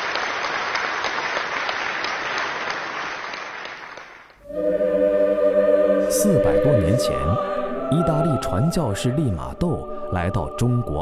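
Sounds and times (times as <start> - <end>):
audience applauding: 0.0 - 4.3
music with held tones: 4.4 - 11.0.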